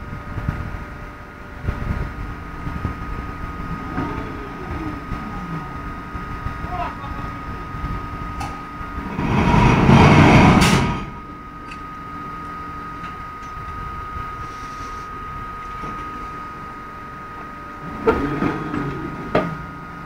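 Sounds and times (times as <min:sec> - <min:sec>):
loud rumble: 0:00.0 - 0:12.4
mining shovel whine and rumble: 0:00.0 - 0:20.0.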